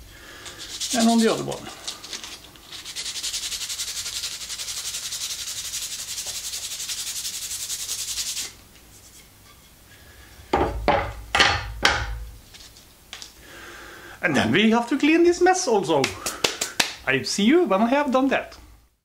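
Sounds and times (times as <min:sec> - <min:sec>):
sandpaper rubbing on wood: 0:00.4 - 0:09.2
wooden piece knocking on table: 0:10.6 - 0:12.2.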